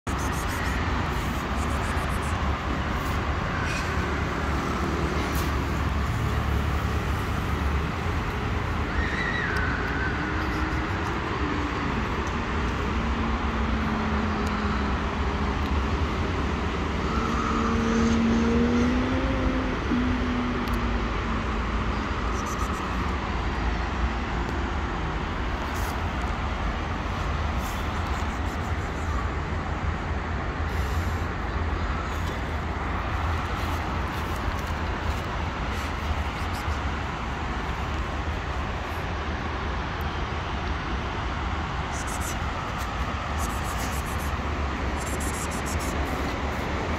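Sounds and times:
road traffic noise: 0.0 - 46.9
vehicle passing: 10.1 - 24.1.

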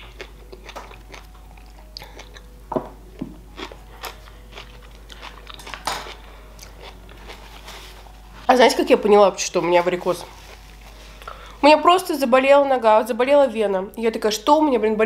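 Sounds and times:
wet mouth chewing sounds: 0.0 - 2.5, 3.6 - 7.6
crunching bites: 3.6 - 7.4.

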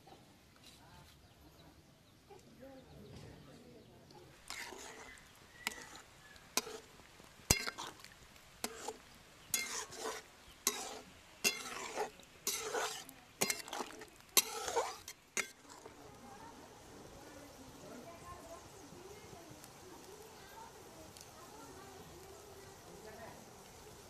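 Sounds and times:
spoon scraping pot: 4.3 - 16.1
metal spoon clinking on pot: 7.5 - 15.9.

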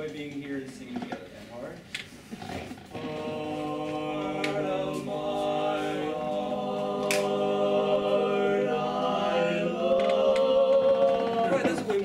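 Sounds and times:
chorus singing a cappella: 2.9 - 12.0.

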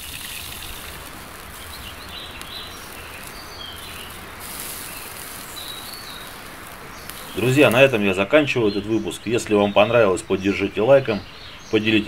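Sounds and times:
sausages sizzling: 0.0 - 9.6
faint bird chirps: 0.0 - 12.0.

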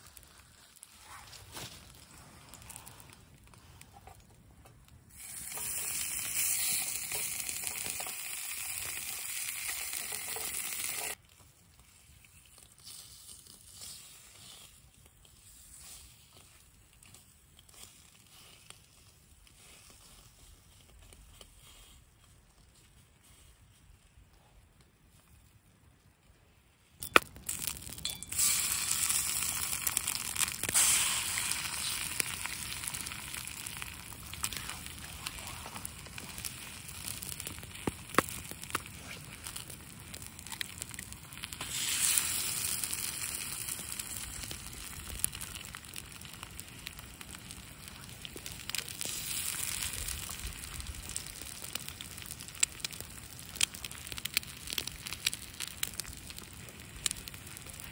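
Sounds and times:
fire crackling: 0.0 - 57.9
eggs sizzling in frying pan: 5.0 - 11.2, 27.0 - 57.9.

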